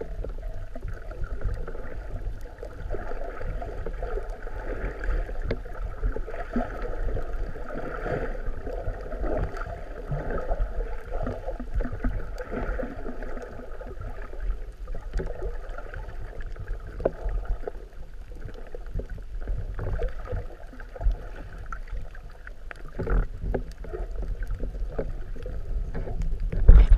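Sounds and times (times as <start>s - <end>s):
muffled underwater water sloshing: 0.0s - 26.9s.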